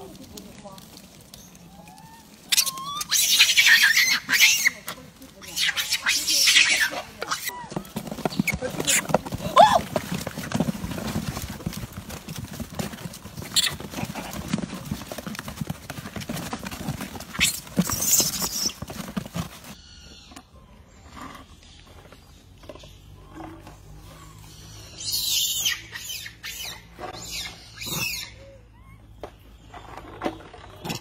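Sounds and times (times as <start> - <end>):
monkeys shrill calls: 1.7 - 7.8, 24.3 - 29.1.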